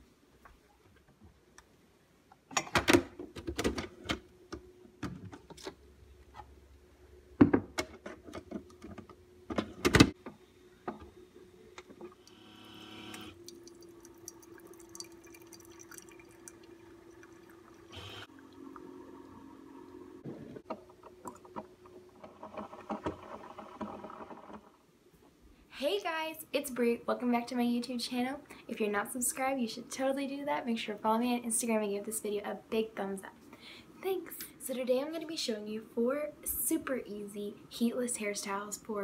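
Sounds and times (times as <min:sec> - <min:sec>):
coffee brewer humming: 0:10.2 - 0:24.7
coffee dripping into mug: 0:13.4 - 0:18.9.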